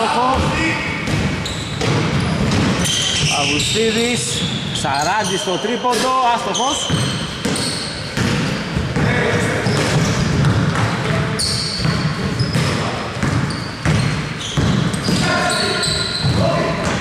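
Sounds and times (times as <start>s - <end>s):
shoe squeaks: 1.4s - 10.5s, 11.2s - 16.9s
basketball bouncing on hardwood: 8.2s - 9.1s, 11.8s - 15.3s.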